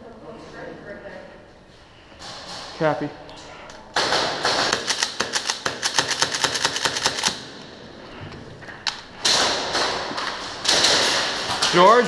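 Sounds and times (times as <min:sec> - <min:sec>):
airsoft gun firing: 0:04.0 - 0:07.5, 0:09.2 - 0:11.6.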